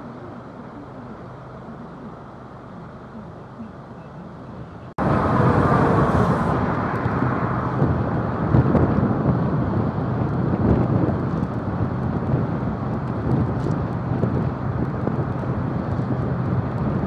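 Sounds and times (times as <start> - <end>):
road rumble: 0.0 - 17.0
wind rushing over camera: 5.0 - 17.0.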